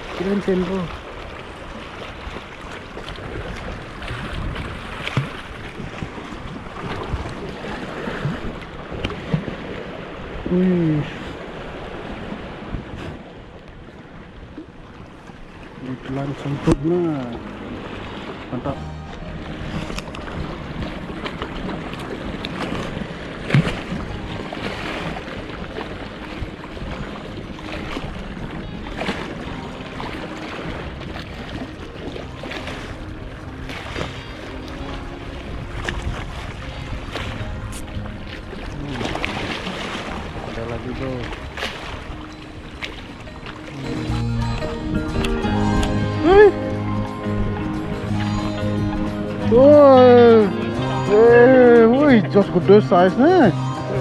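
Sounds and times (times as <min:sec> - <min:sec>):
small waves washing on rocks: 0:00.0 - 0:13.5, 0:19.7 - 0:37.6, 0:38.2 - 0:43.7
wind buffeting microphone: 0:00.0 - 0:17.0, 0:32.9 - 0:48.2.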